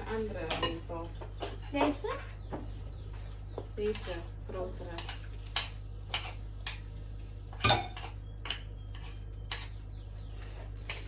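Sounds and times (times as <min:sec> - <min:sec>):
metal spoon scraping a dish: 0:07.6 - 0:11.0.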